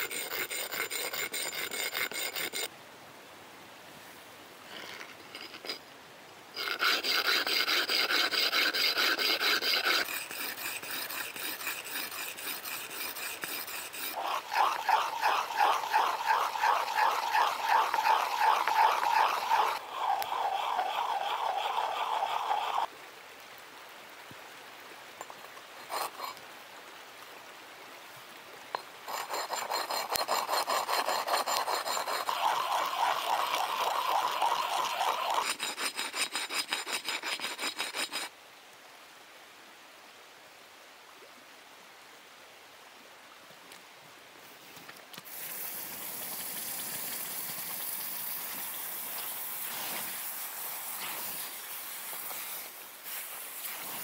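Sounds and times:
rhythmic rasping hand filing: 0.0 - 2.7, 6.6 - 22.9, 29.1 - 33.4, 35.3 - 38.3
steady hiss: 0.0 - 54.0.

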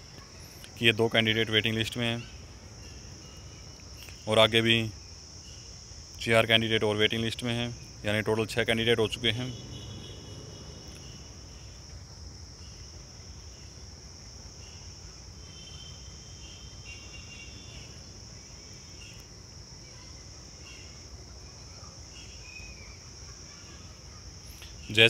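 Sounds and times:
crickets chirring: 0.0 - 25.0.

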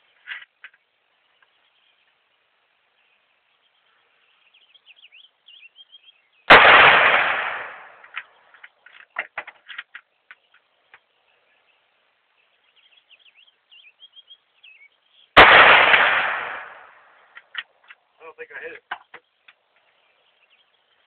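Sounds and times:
birds chirping faintly: 0.0 - 6.5, 7.8 - 21.0
rifle shot with echo: 6.5 - 8.1, 15.4 - 17.2.

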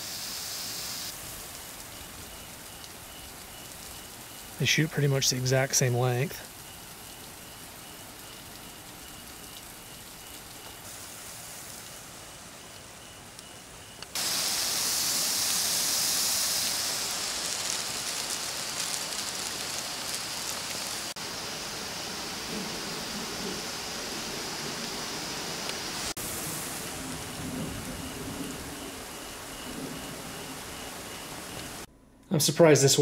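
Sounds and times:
hose spray on foliage: 0.0 - 12.5, 14.1 - 27.4
water spraying from nozzle: 0.0 - 12.8, 13.6 - 31.9.

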